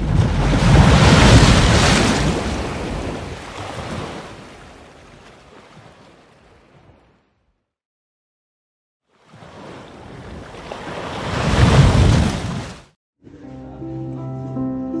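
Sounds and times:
sea surf: 0.0s - 7.1s, 9.2s - 12.9s.

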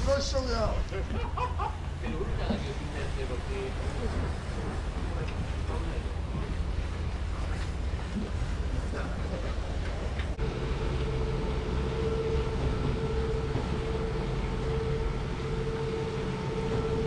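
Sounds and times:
winch machinery low rumble: 0.0s - 17.0s
winch steady whine: 0.0s - 17.0s.

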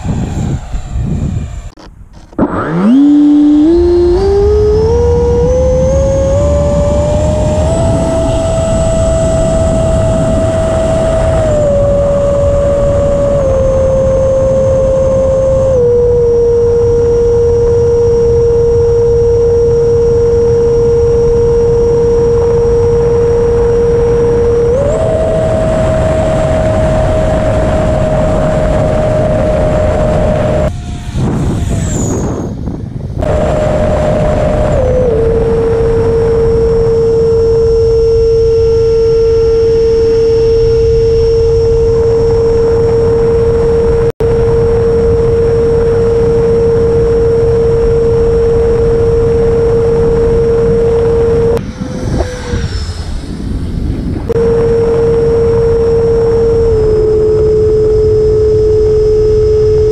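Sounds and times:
electric fan high whine: 0.0s - 59.9s
rushing wind: 0.0s - 59.9s.

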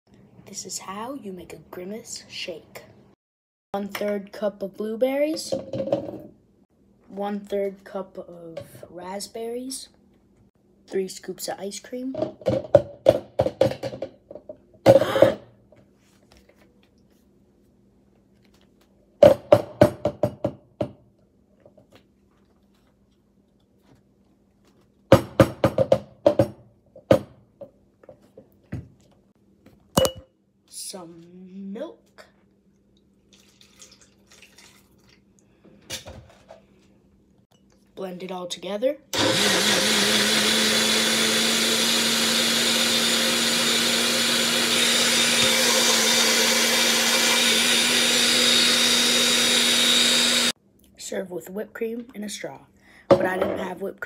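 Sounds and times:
milk pouring into cup: 33.3s - 35.2s.

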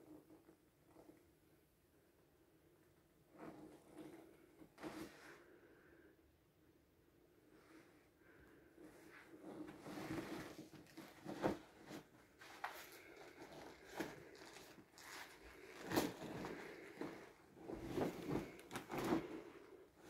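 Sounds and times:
vinyl pool toy crumpling: 12.5s - 17.0s.

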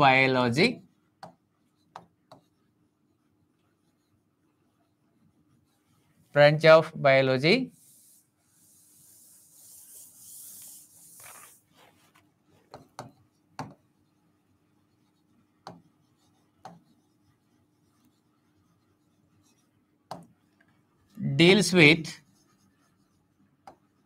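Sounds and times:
writing taps on a board: 1.2s - 2.6s, 12.7s - 13.8s, 15.6s - 15.9s, 16.6s - 17.0s, 20.1s - 20.3s, 23.6s - 23.9s
hand wiping a board: 7.7s - 12.8s.

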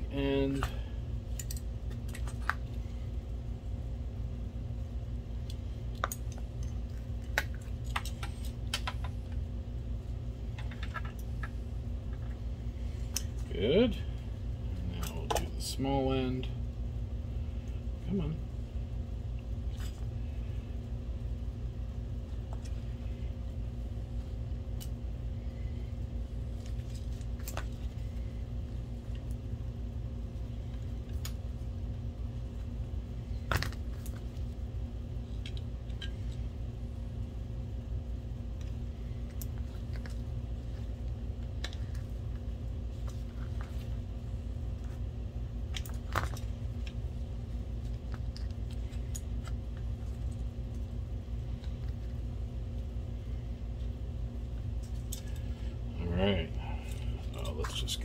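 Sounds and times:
low room hum: 0.0s - 58.0s.

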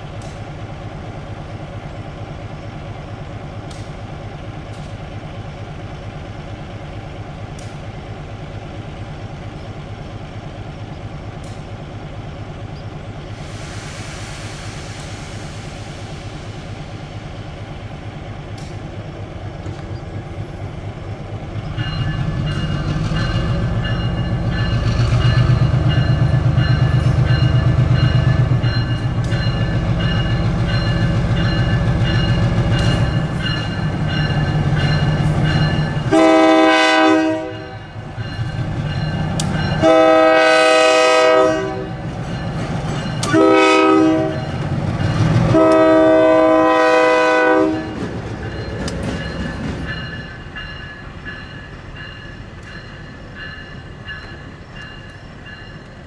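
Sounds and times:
diesel locomotive engine: 0.0s - 56.0s
short hiss: 13.4s - 17.1s.

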